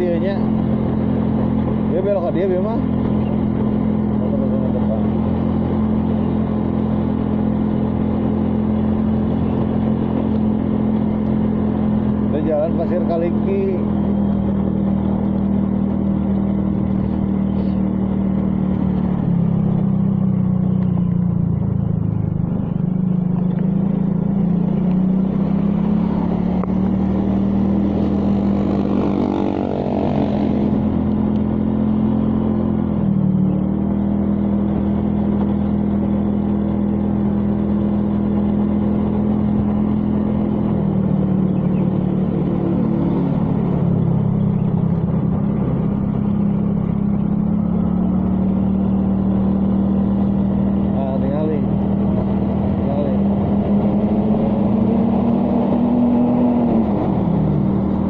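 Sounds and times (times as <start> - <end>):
vehicle engine running: 0.0 - 58.0
vehicle passing close by: 23.2 - 32.6.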